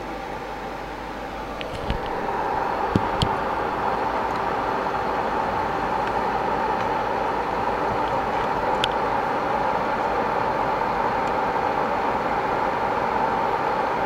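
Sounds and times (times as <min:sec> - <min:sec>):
loud cooling fan rushing: 0:00.0 - 0:14.0.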